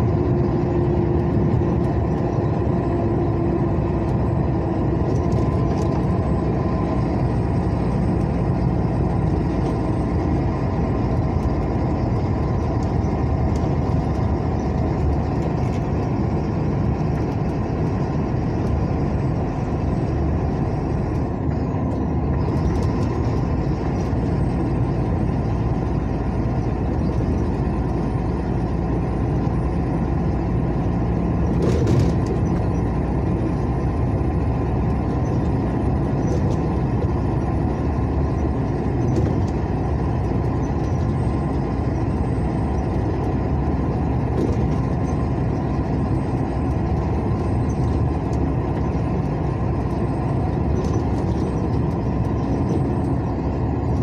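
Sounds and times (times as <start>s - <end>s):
vehicle engine and tyre noise: 0.0s - 54.0s.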